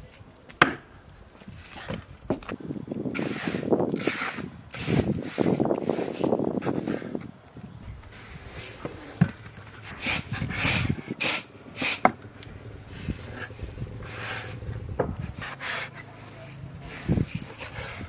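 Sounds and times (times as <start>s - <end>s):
knife scraping on cutting board: 15.2s - 16.1s.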